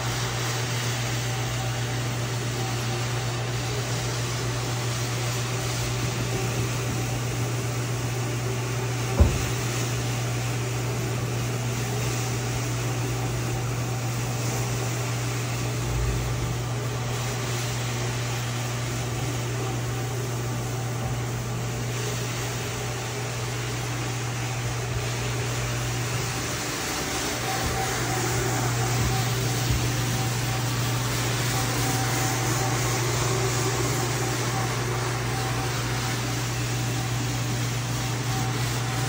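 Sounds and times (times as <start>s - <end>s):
rug-cleaning machine humming and hissing: 0.0s - 39.0s
sharp knock: 9.2s - 9.6s.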